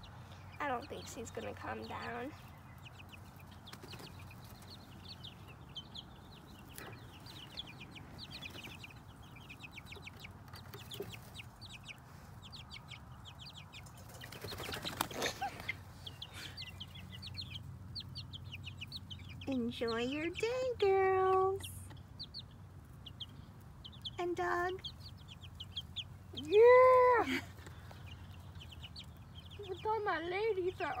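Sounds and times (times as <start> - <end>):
chicks peeping: 0.0 - 31.0
hen clucking: 0.0 - 31.0
hen flapping wings: 14.0 - 15.9.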